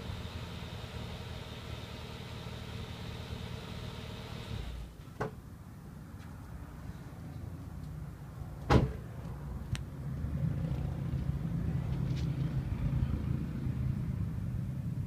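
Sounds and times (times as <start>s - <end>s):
car exhaust rumble idling: 0.0s - 4.9s.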